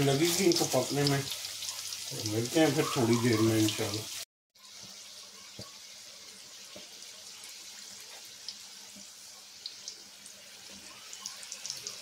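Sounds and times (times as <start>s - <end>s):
oil crackling: 0.0s - 4.0s
food deep-frying in hot oil: 0.0s - 12.0s.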